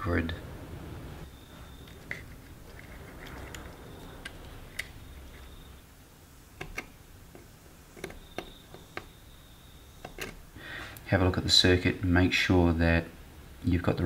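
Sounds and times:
pliers clicking on wire: 6.6 - 9.1, 10.0 - 10.4.

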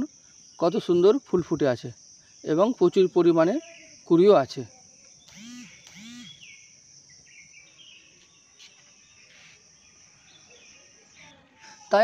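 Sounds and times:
high-pitched insect drone: 0.0 - 12.0
short pitched calls: 5.2 - 6.7, 8.5 - 10.0.

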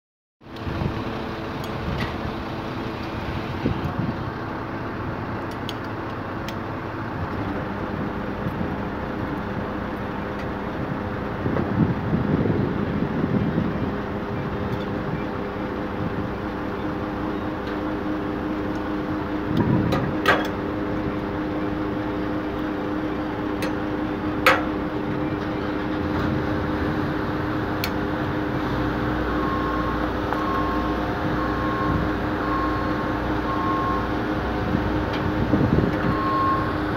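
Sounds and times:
diesel engine running: 0.4 - 36.9
sharp metallic knocks: 24.4 - 24.8.

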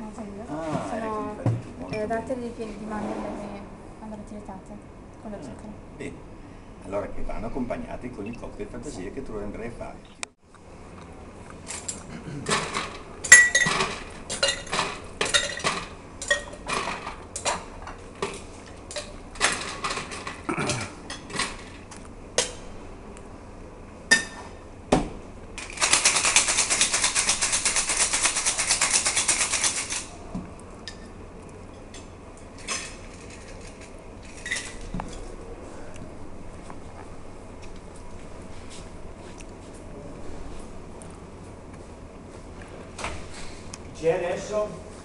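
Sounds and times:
glasses and bottles clinking: 13.2 - 17.0
ice rattling in cocktail shaker: 25.6 - 30.1, 32.6 - 34.8.

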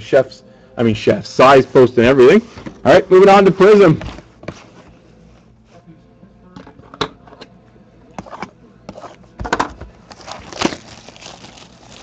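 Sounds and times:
plastic shrink wrap crinkling: 10.1 - 12.0.

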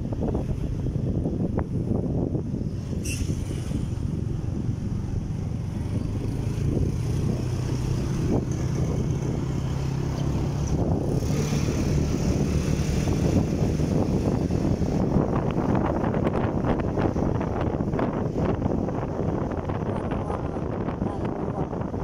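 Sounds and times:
wind noise on microphone: 0.0 - 22.0.

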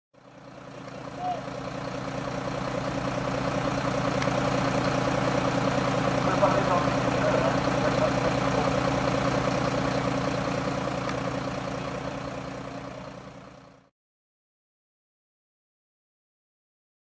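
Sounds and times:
diesel engine idling: 0.2 - 13.9.

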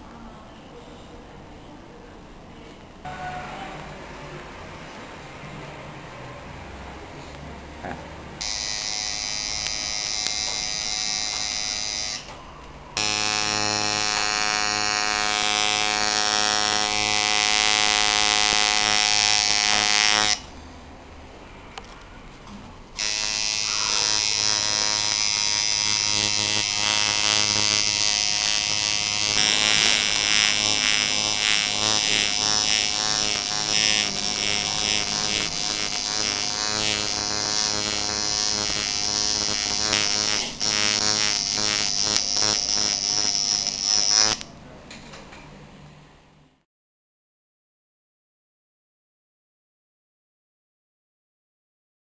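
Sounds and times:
tattoo machine buzzing: 8.4 - 12.3, 13.0 - 20.5, 23.0 - 44.5.

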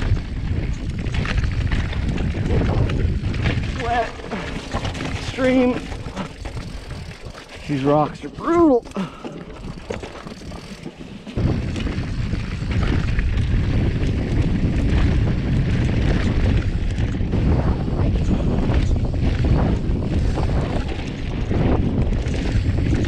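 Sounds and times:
bike knocks and rattles: 0.0 - 23.0
wind buffeting microphone: 0.0 - 23.0
tyres crunching over rock: 0.2 - 16.4.

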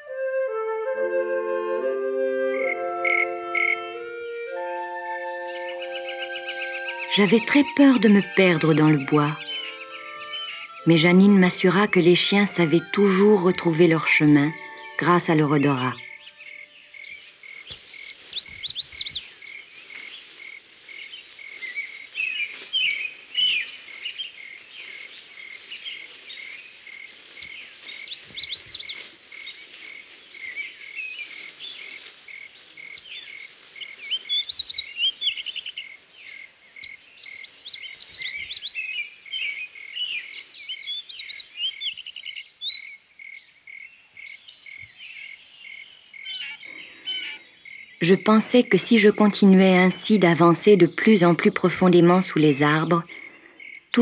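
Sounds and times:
songbirds chirping songs: 2.4 - 54.0
repeated high pulsing chirp: 2.5 - 4.6.

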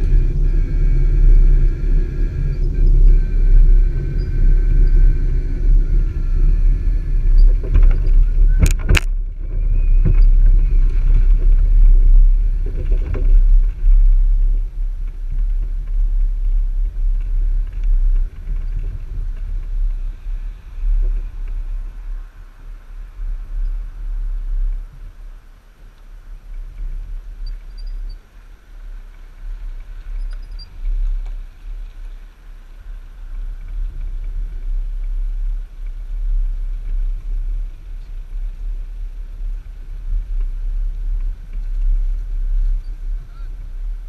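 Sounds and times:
trailer rolling over tarmac: 0.0 - 23.0.

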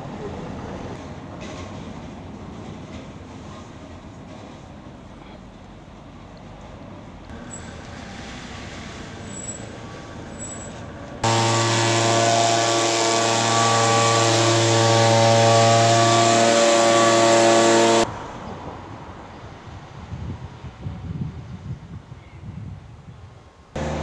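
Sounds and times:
motor running steadily: 23.8 - 24.0.

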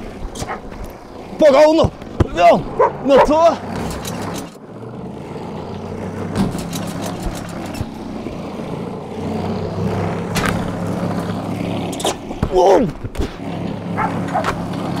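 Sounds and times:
machine motor running: 0.0 - 15.0
basketball thudding: 1.8 - 2.4.

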